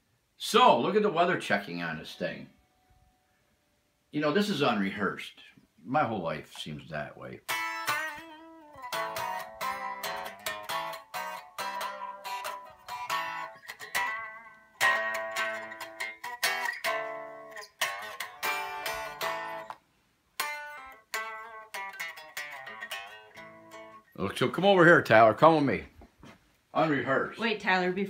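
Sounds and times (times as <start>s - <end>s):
electric guitar chords and notes: 7.4s - 24.3s.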